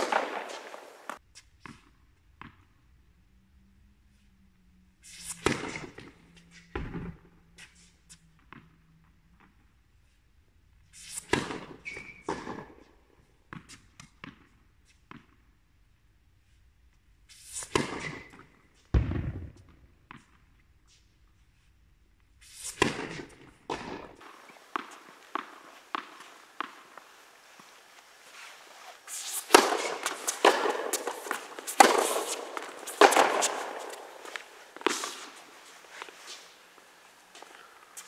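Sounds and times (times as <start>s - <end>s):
tennis ball bouncing: 0.0s - 1.2s, 22.8s - 27.7s, 29.1s - 36.5s
tennis balls struck by rackets: 0.0s - 1.8s, 17.6s - 20.4s, 22.6s - 27.8s, 28.8s - 38.0s.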